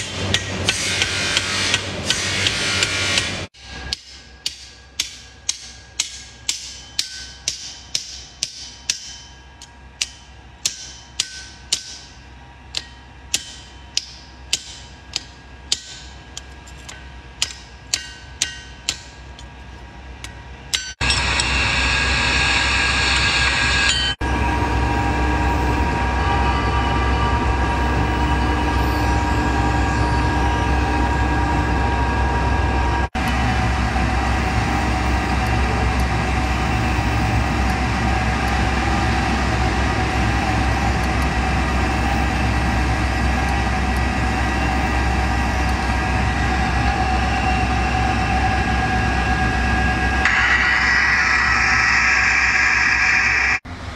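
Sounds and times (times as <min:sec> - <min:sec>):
hammer striking steel on anvil: 0:00.0 - 0:19.6, 0:20.2 - 0:21.6, 0:50.1 - 0:53.6
induction heater humming: 0:03.9 - 0:53.6.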